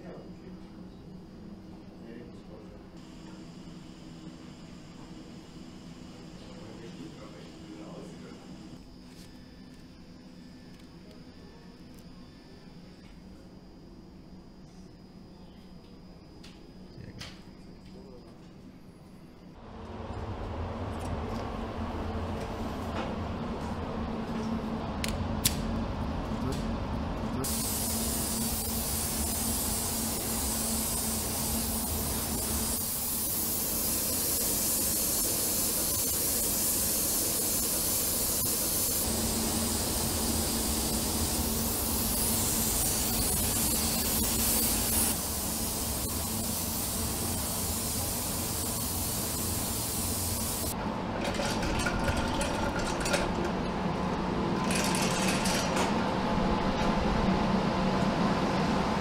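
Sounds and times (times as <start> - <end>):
steady low hum: 0.0 - 59.0
paint spray gun hissing: 27.4 - 50.8.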